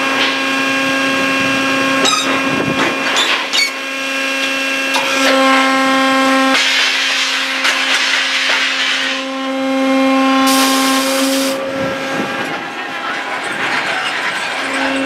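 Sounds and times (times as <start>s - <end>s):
motor whine: 9.4s - 12.9s
rushing mechanical noise: 10.3s - 15.0s
high hiss: 10.4s - 11.6s.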